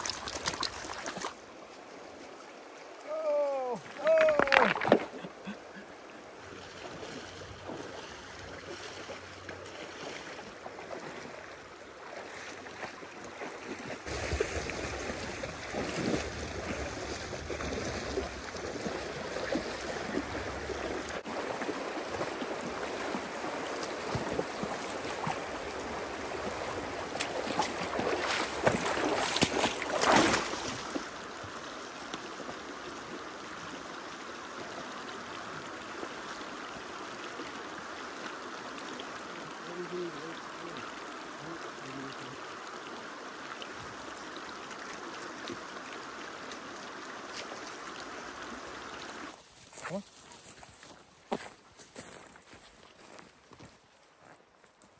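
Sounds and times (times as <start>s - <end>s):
splashing through water: 0.0s - 1.4s, 3.6s - 5.6s, 6.4s - 34.0s.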